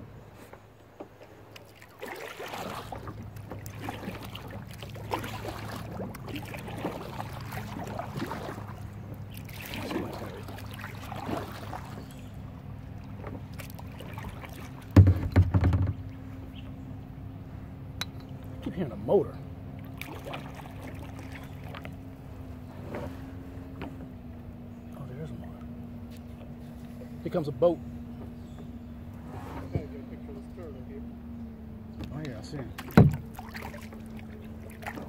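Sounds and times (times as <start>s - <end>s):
paddle strokes swishing water: 0.0s - 16.6s, 19.7s - 24.2s, 29.1s - 30.5s, 32.5s - 35.0s
distant motorboat engine hum: 0.0s - 35.0s.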